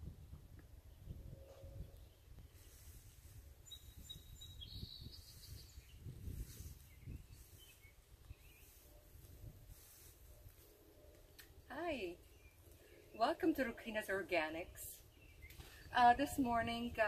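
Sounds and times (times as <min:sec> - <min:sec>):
high bird chirps: 0:03.6 - 0:06.1.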